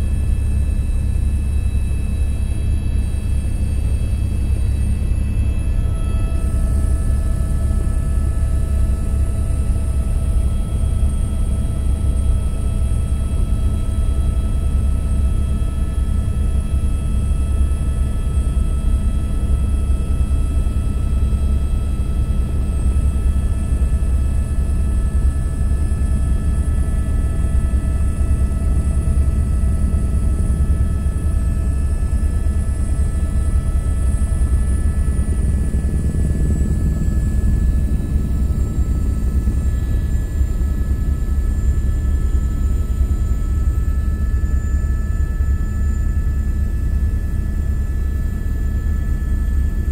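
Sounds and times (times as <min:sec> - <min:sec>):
helicopter rotor rumble: 0:00.0 - 0:49.9.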